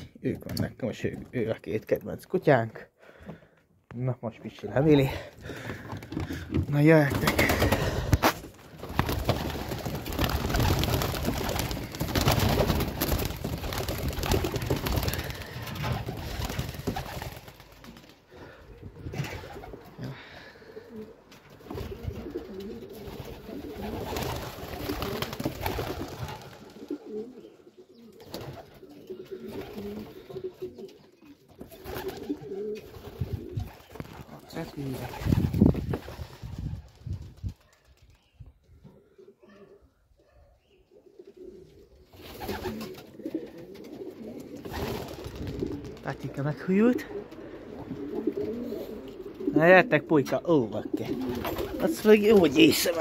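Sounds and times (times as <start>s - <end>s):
pigeons cooing: 7.2s - 34.0s, 37.7s - 53.0s.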